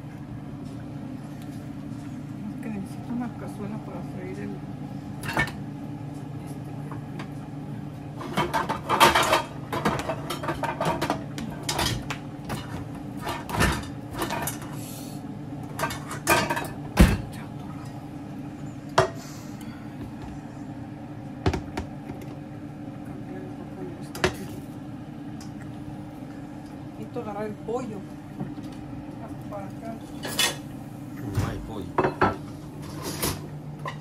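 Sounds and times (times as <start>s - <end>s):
steady low hum: 0.0s - 34.0s
dishes and pots clinking: 8.2s - 14.7s, 15.7s - 17.4s, 31.9s - 34.0s.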